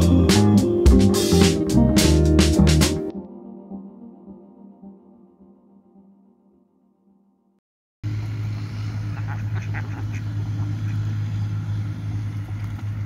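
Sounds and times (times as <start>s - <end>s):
loud low hum: 8.0s - 13.0s
ducks quacking: 9.0s - 11.6s.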